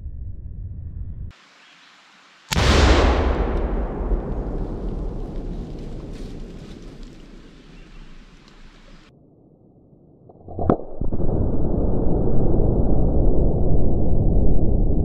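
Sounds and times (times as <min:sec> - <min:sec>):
low rushing noise: 0:00.0 - 0:09.1
rifle shot: 0:02.5 - 0:09.0
low rumble of blast: 0:02.5 - 0:09.1, 0:10.9 - 0:15.0.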